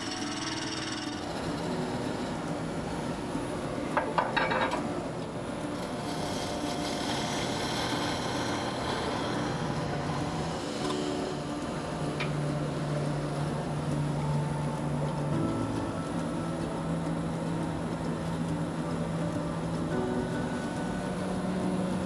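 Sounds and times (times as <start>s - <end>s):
lathe tool scraping wood: 5.8s - 11.5s.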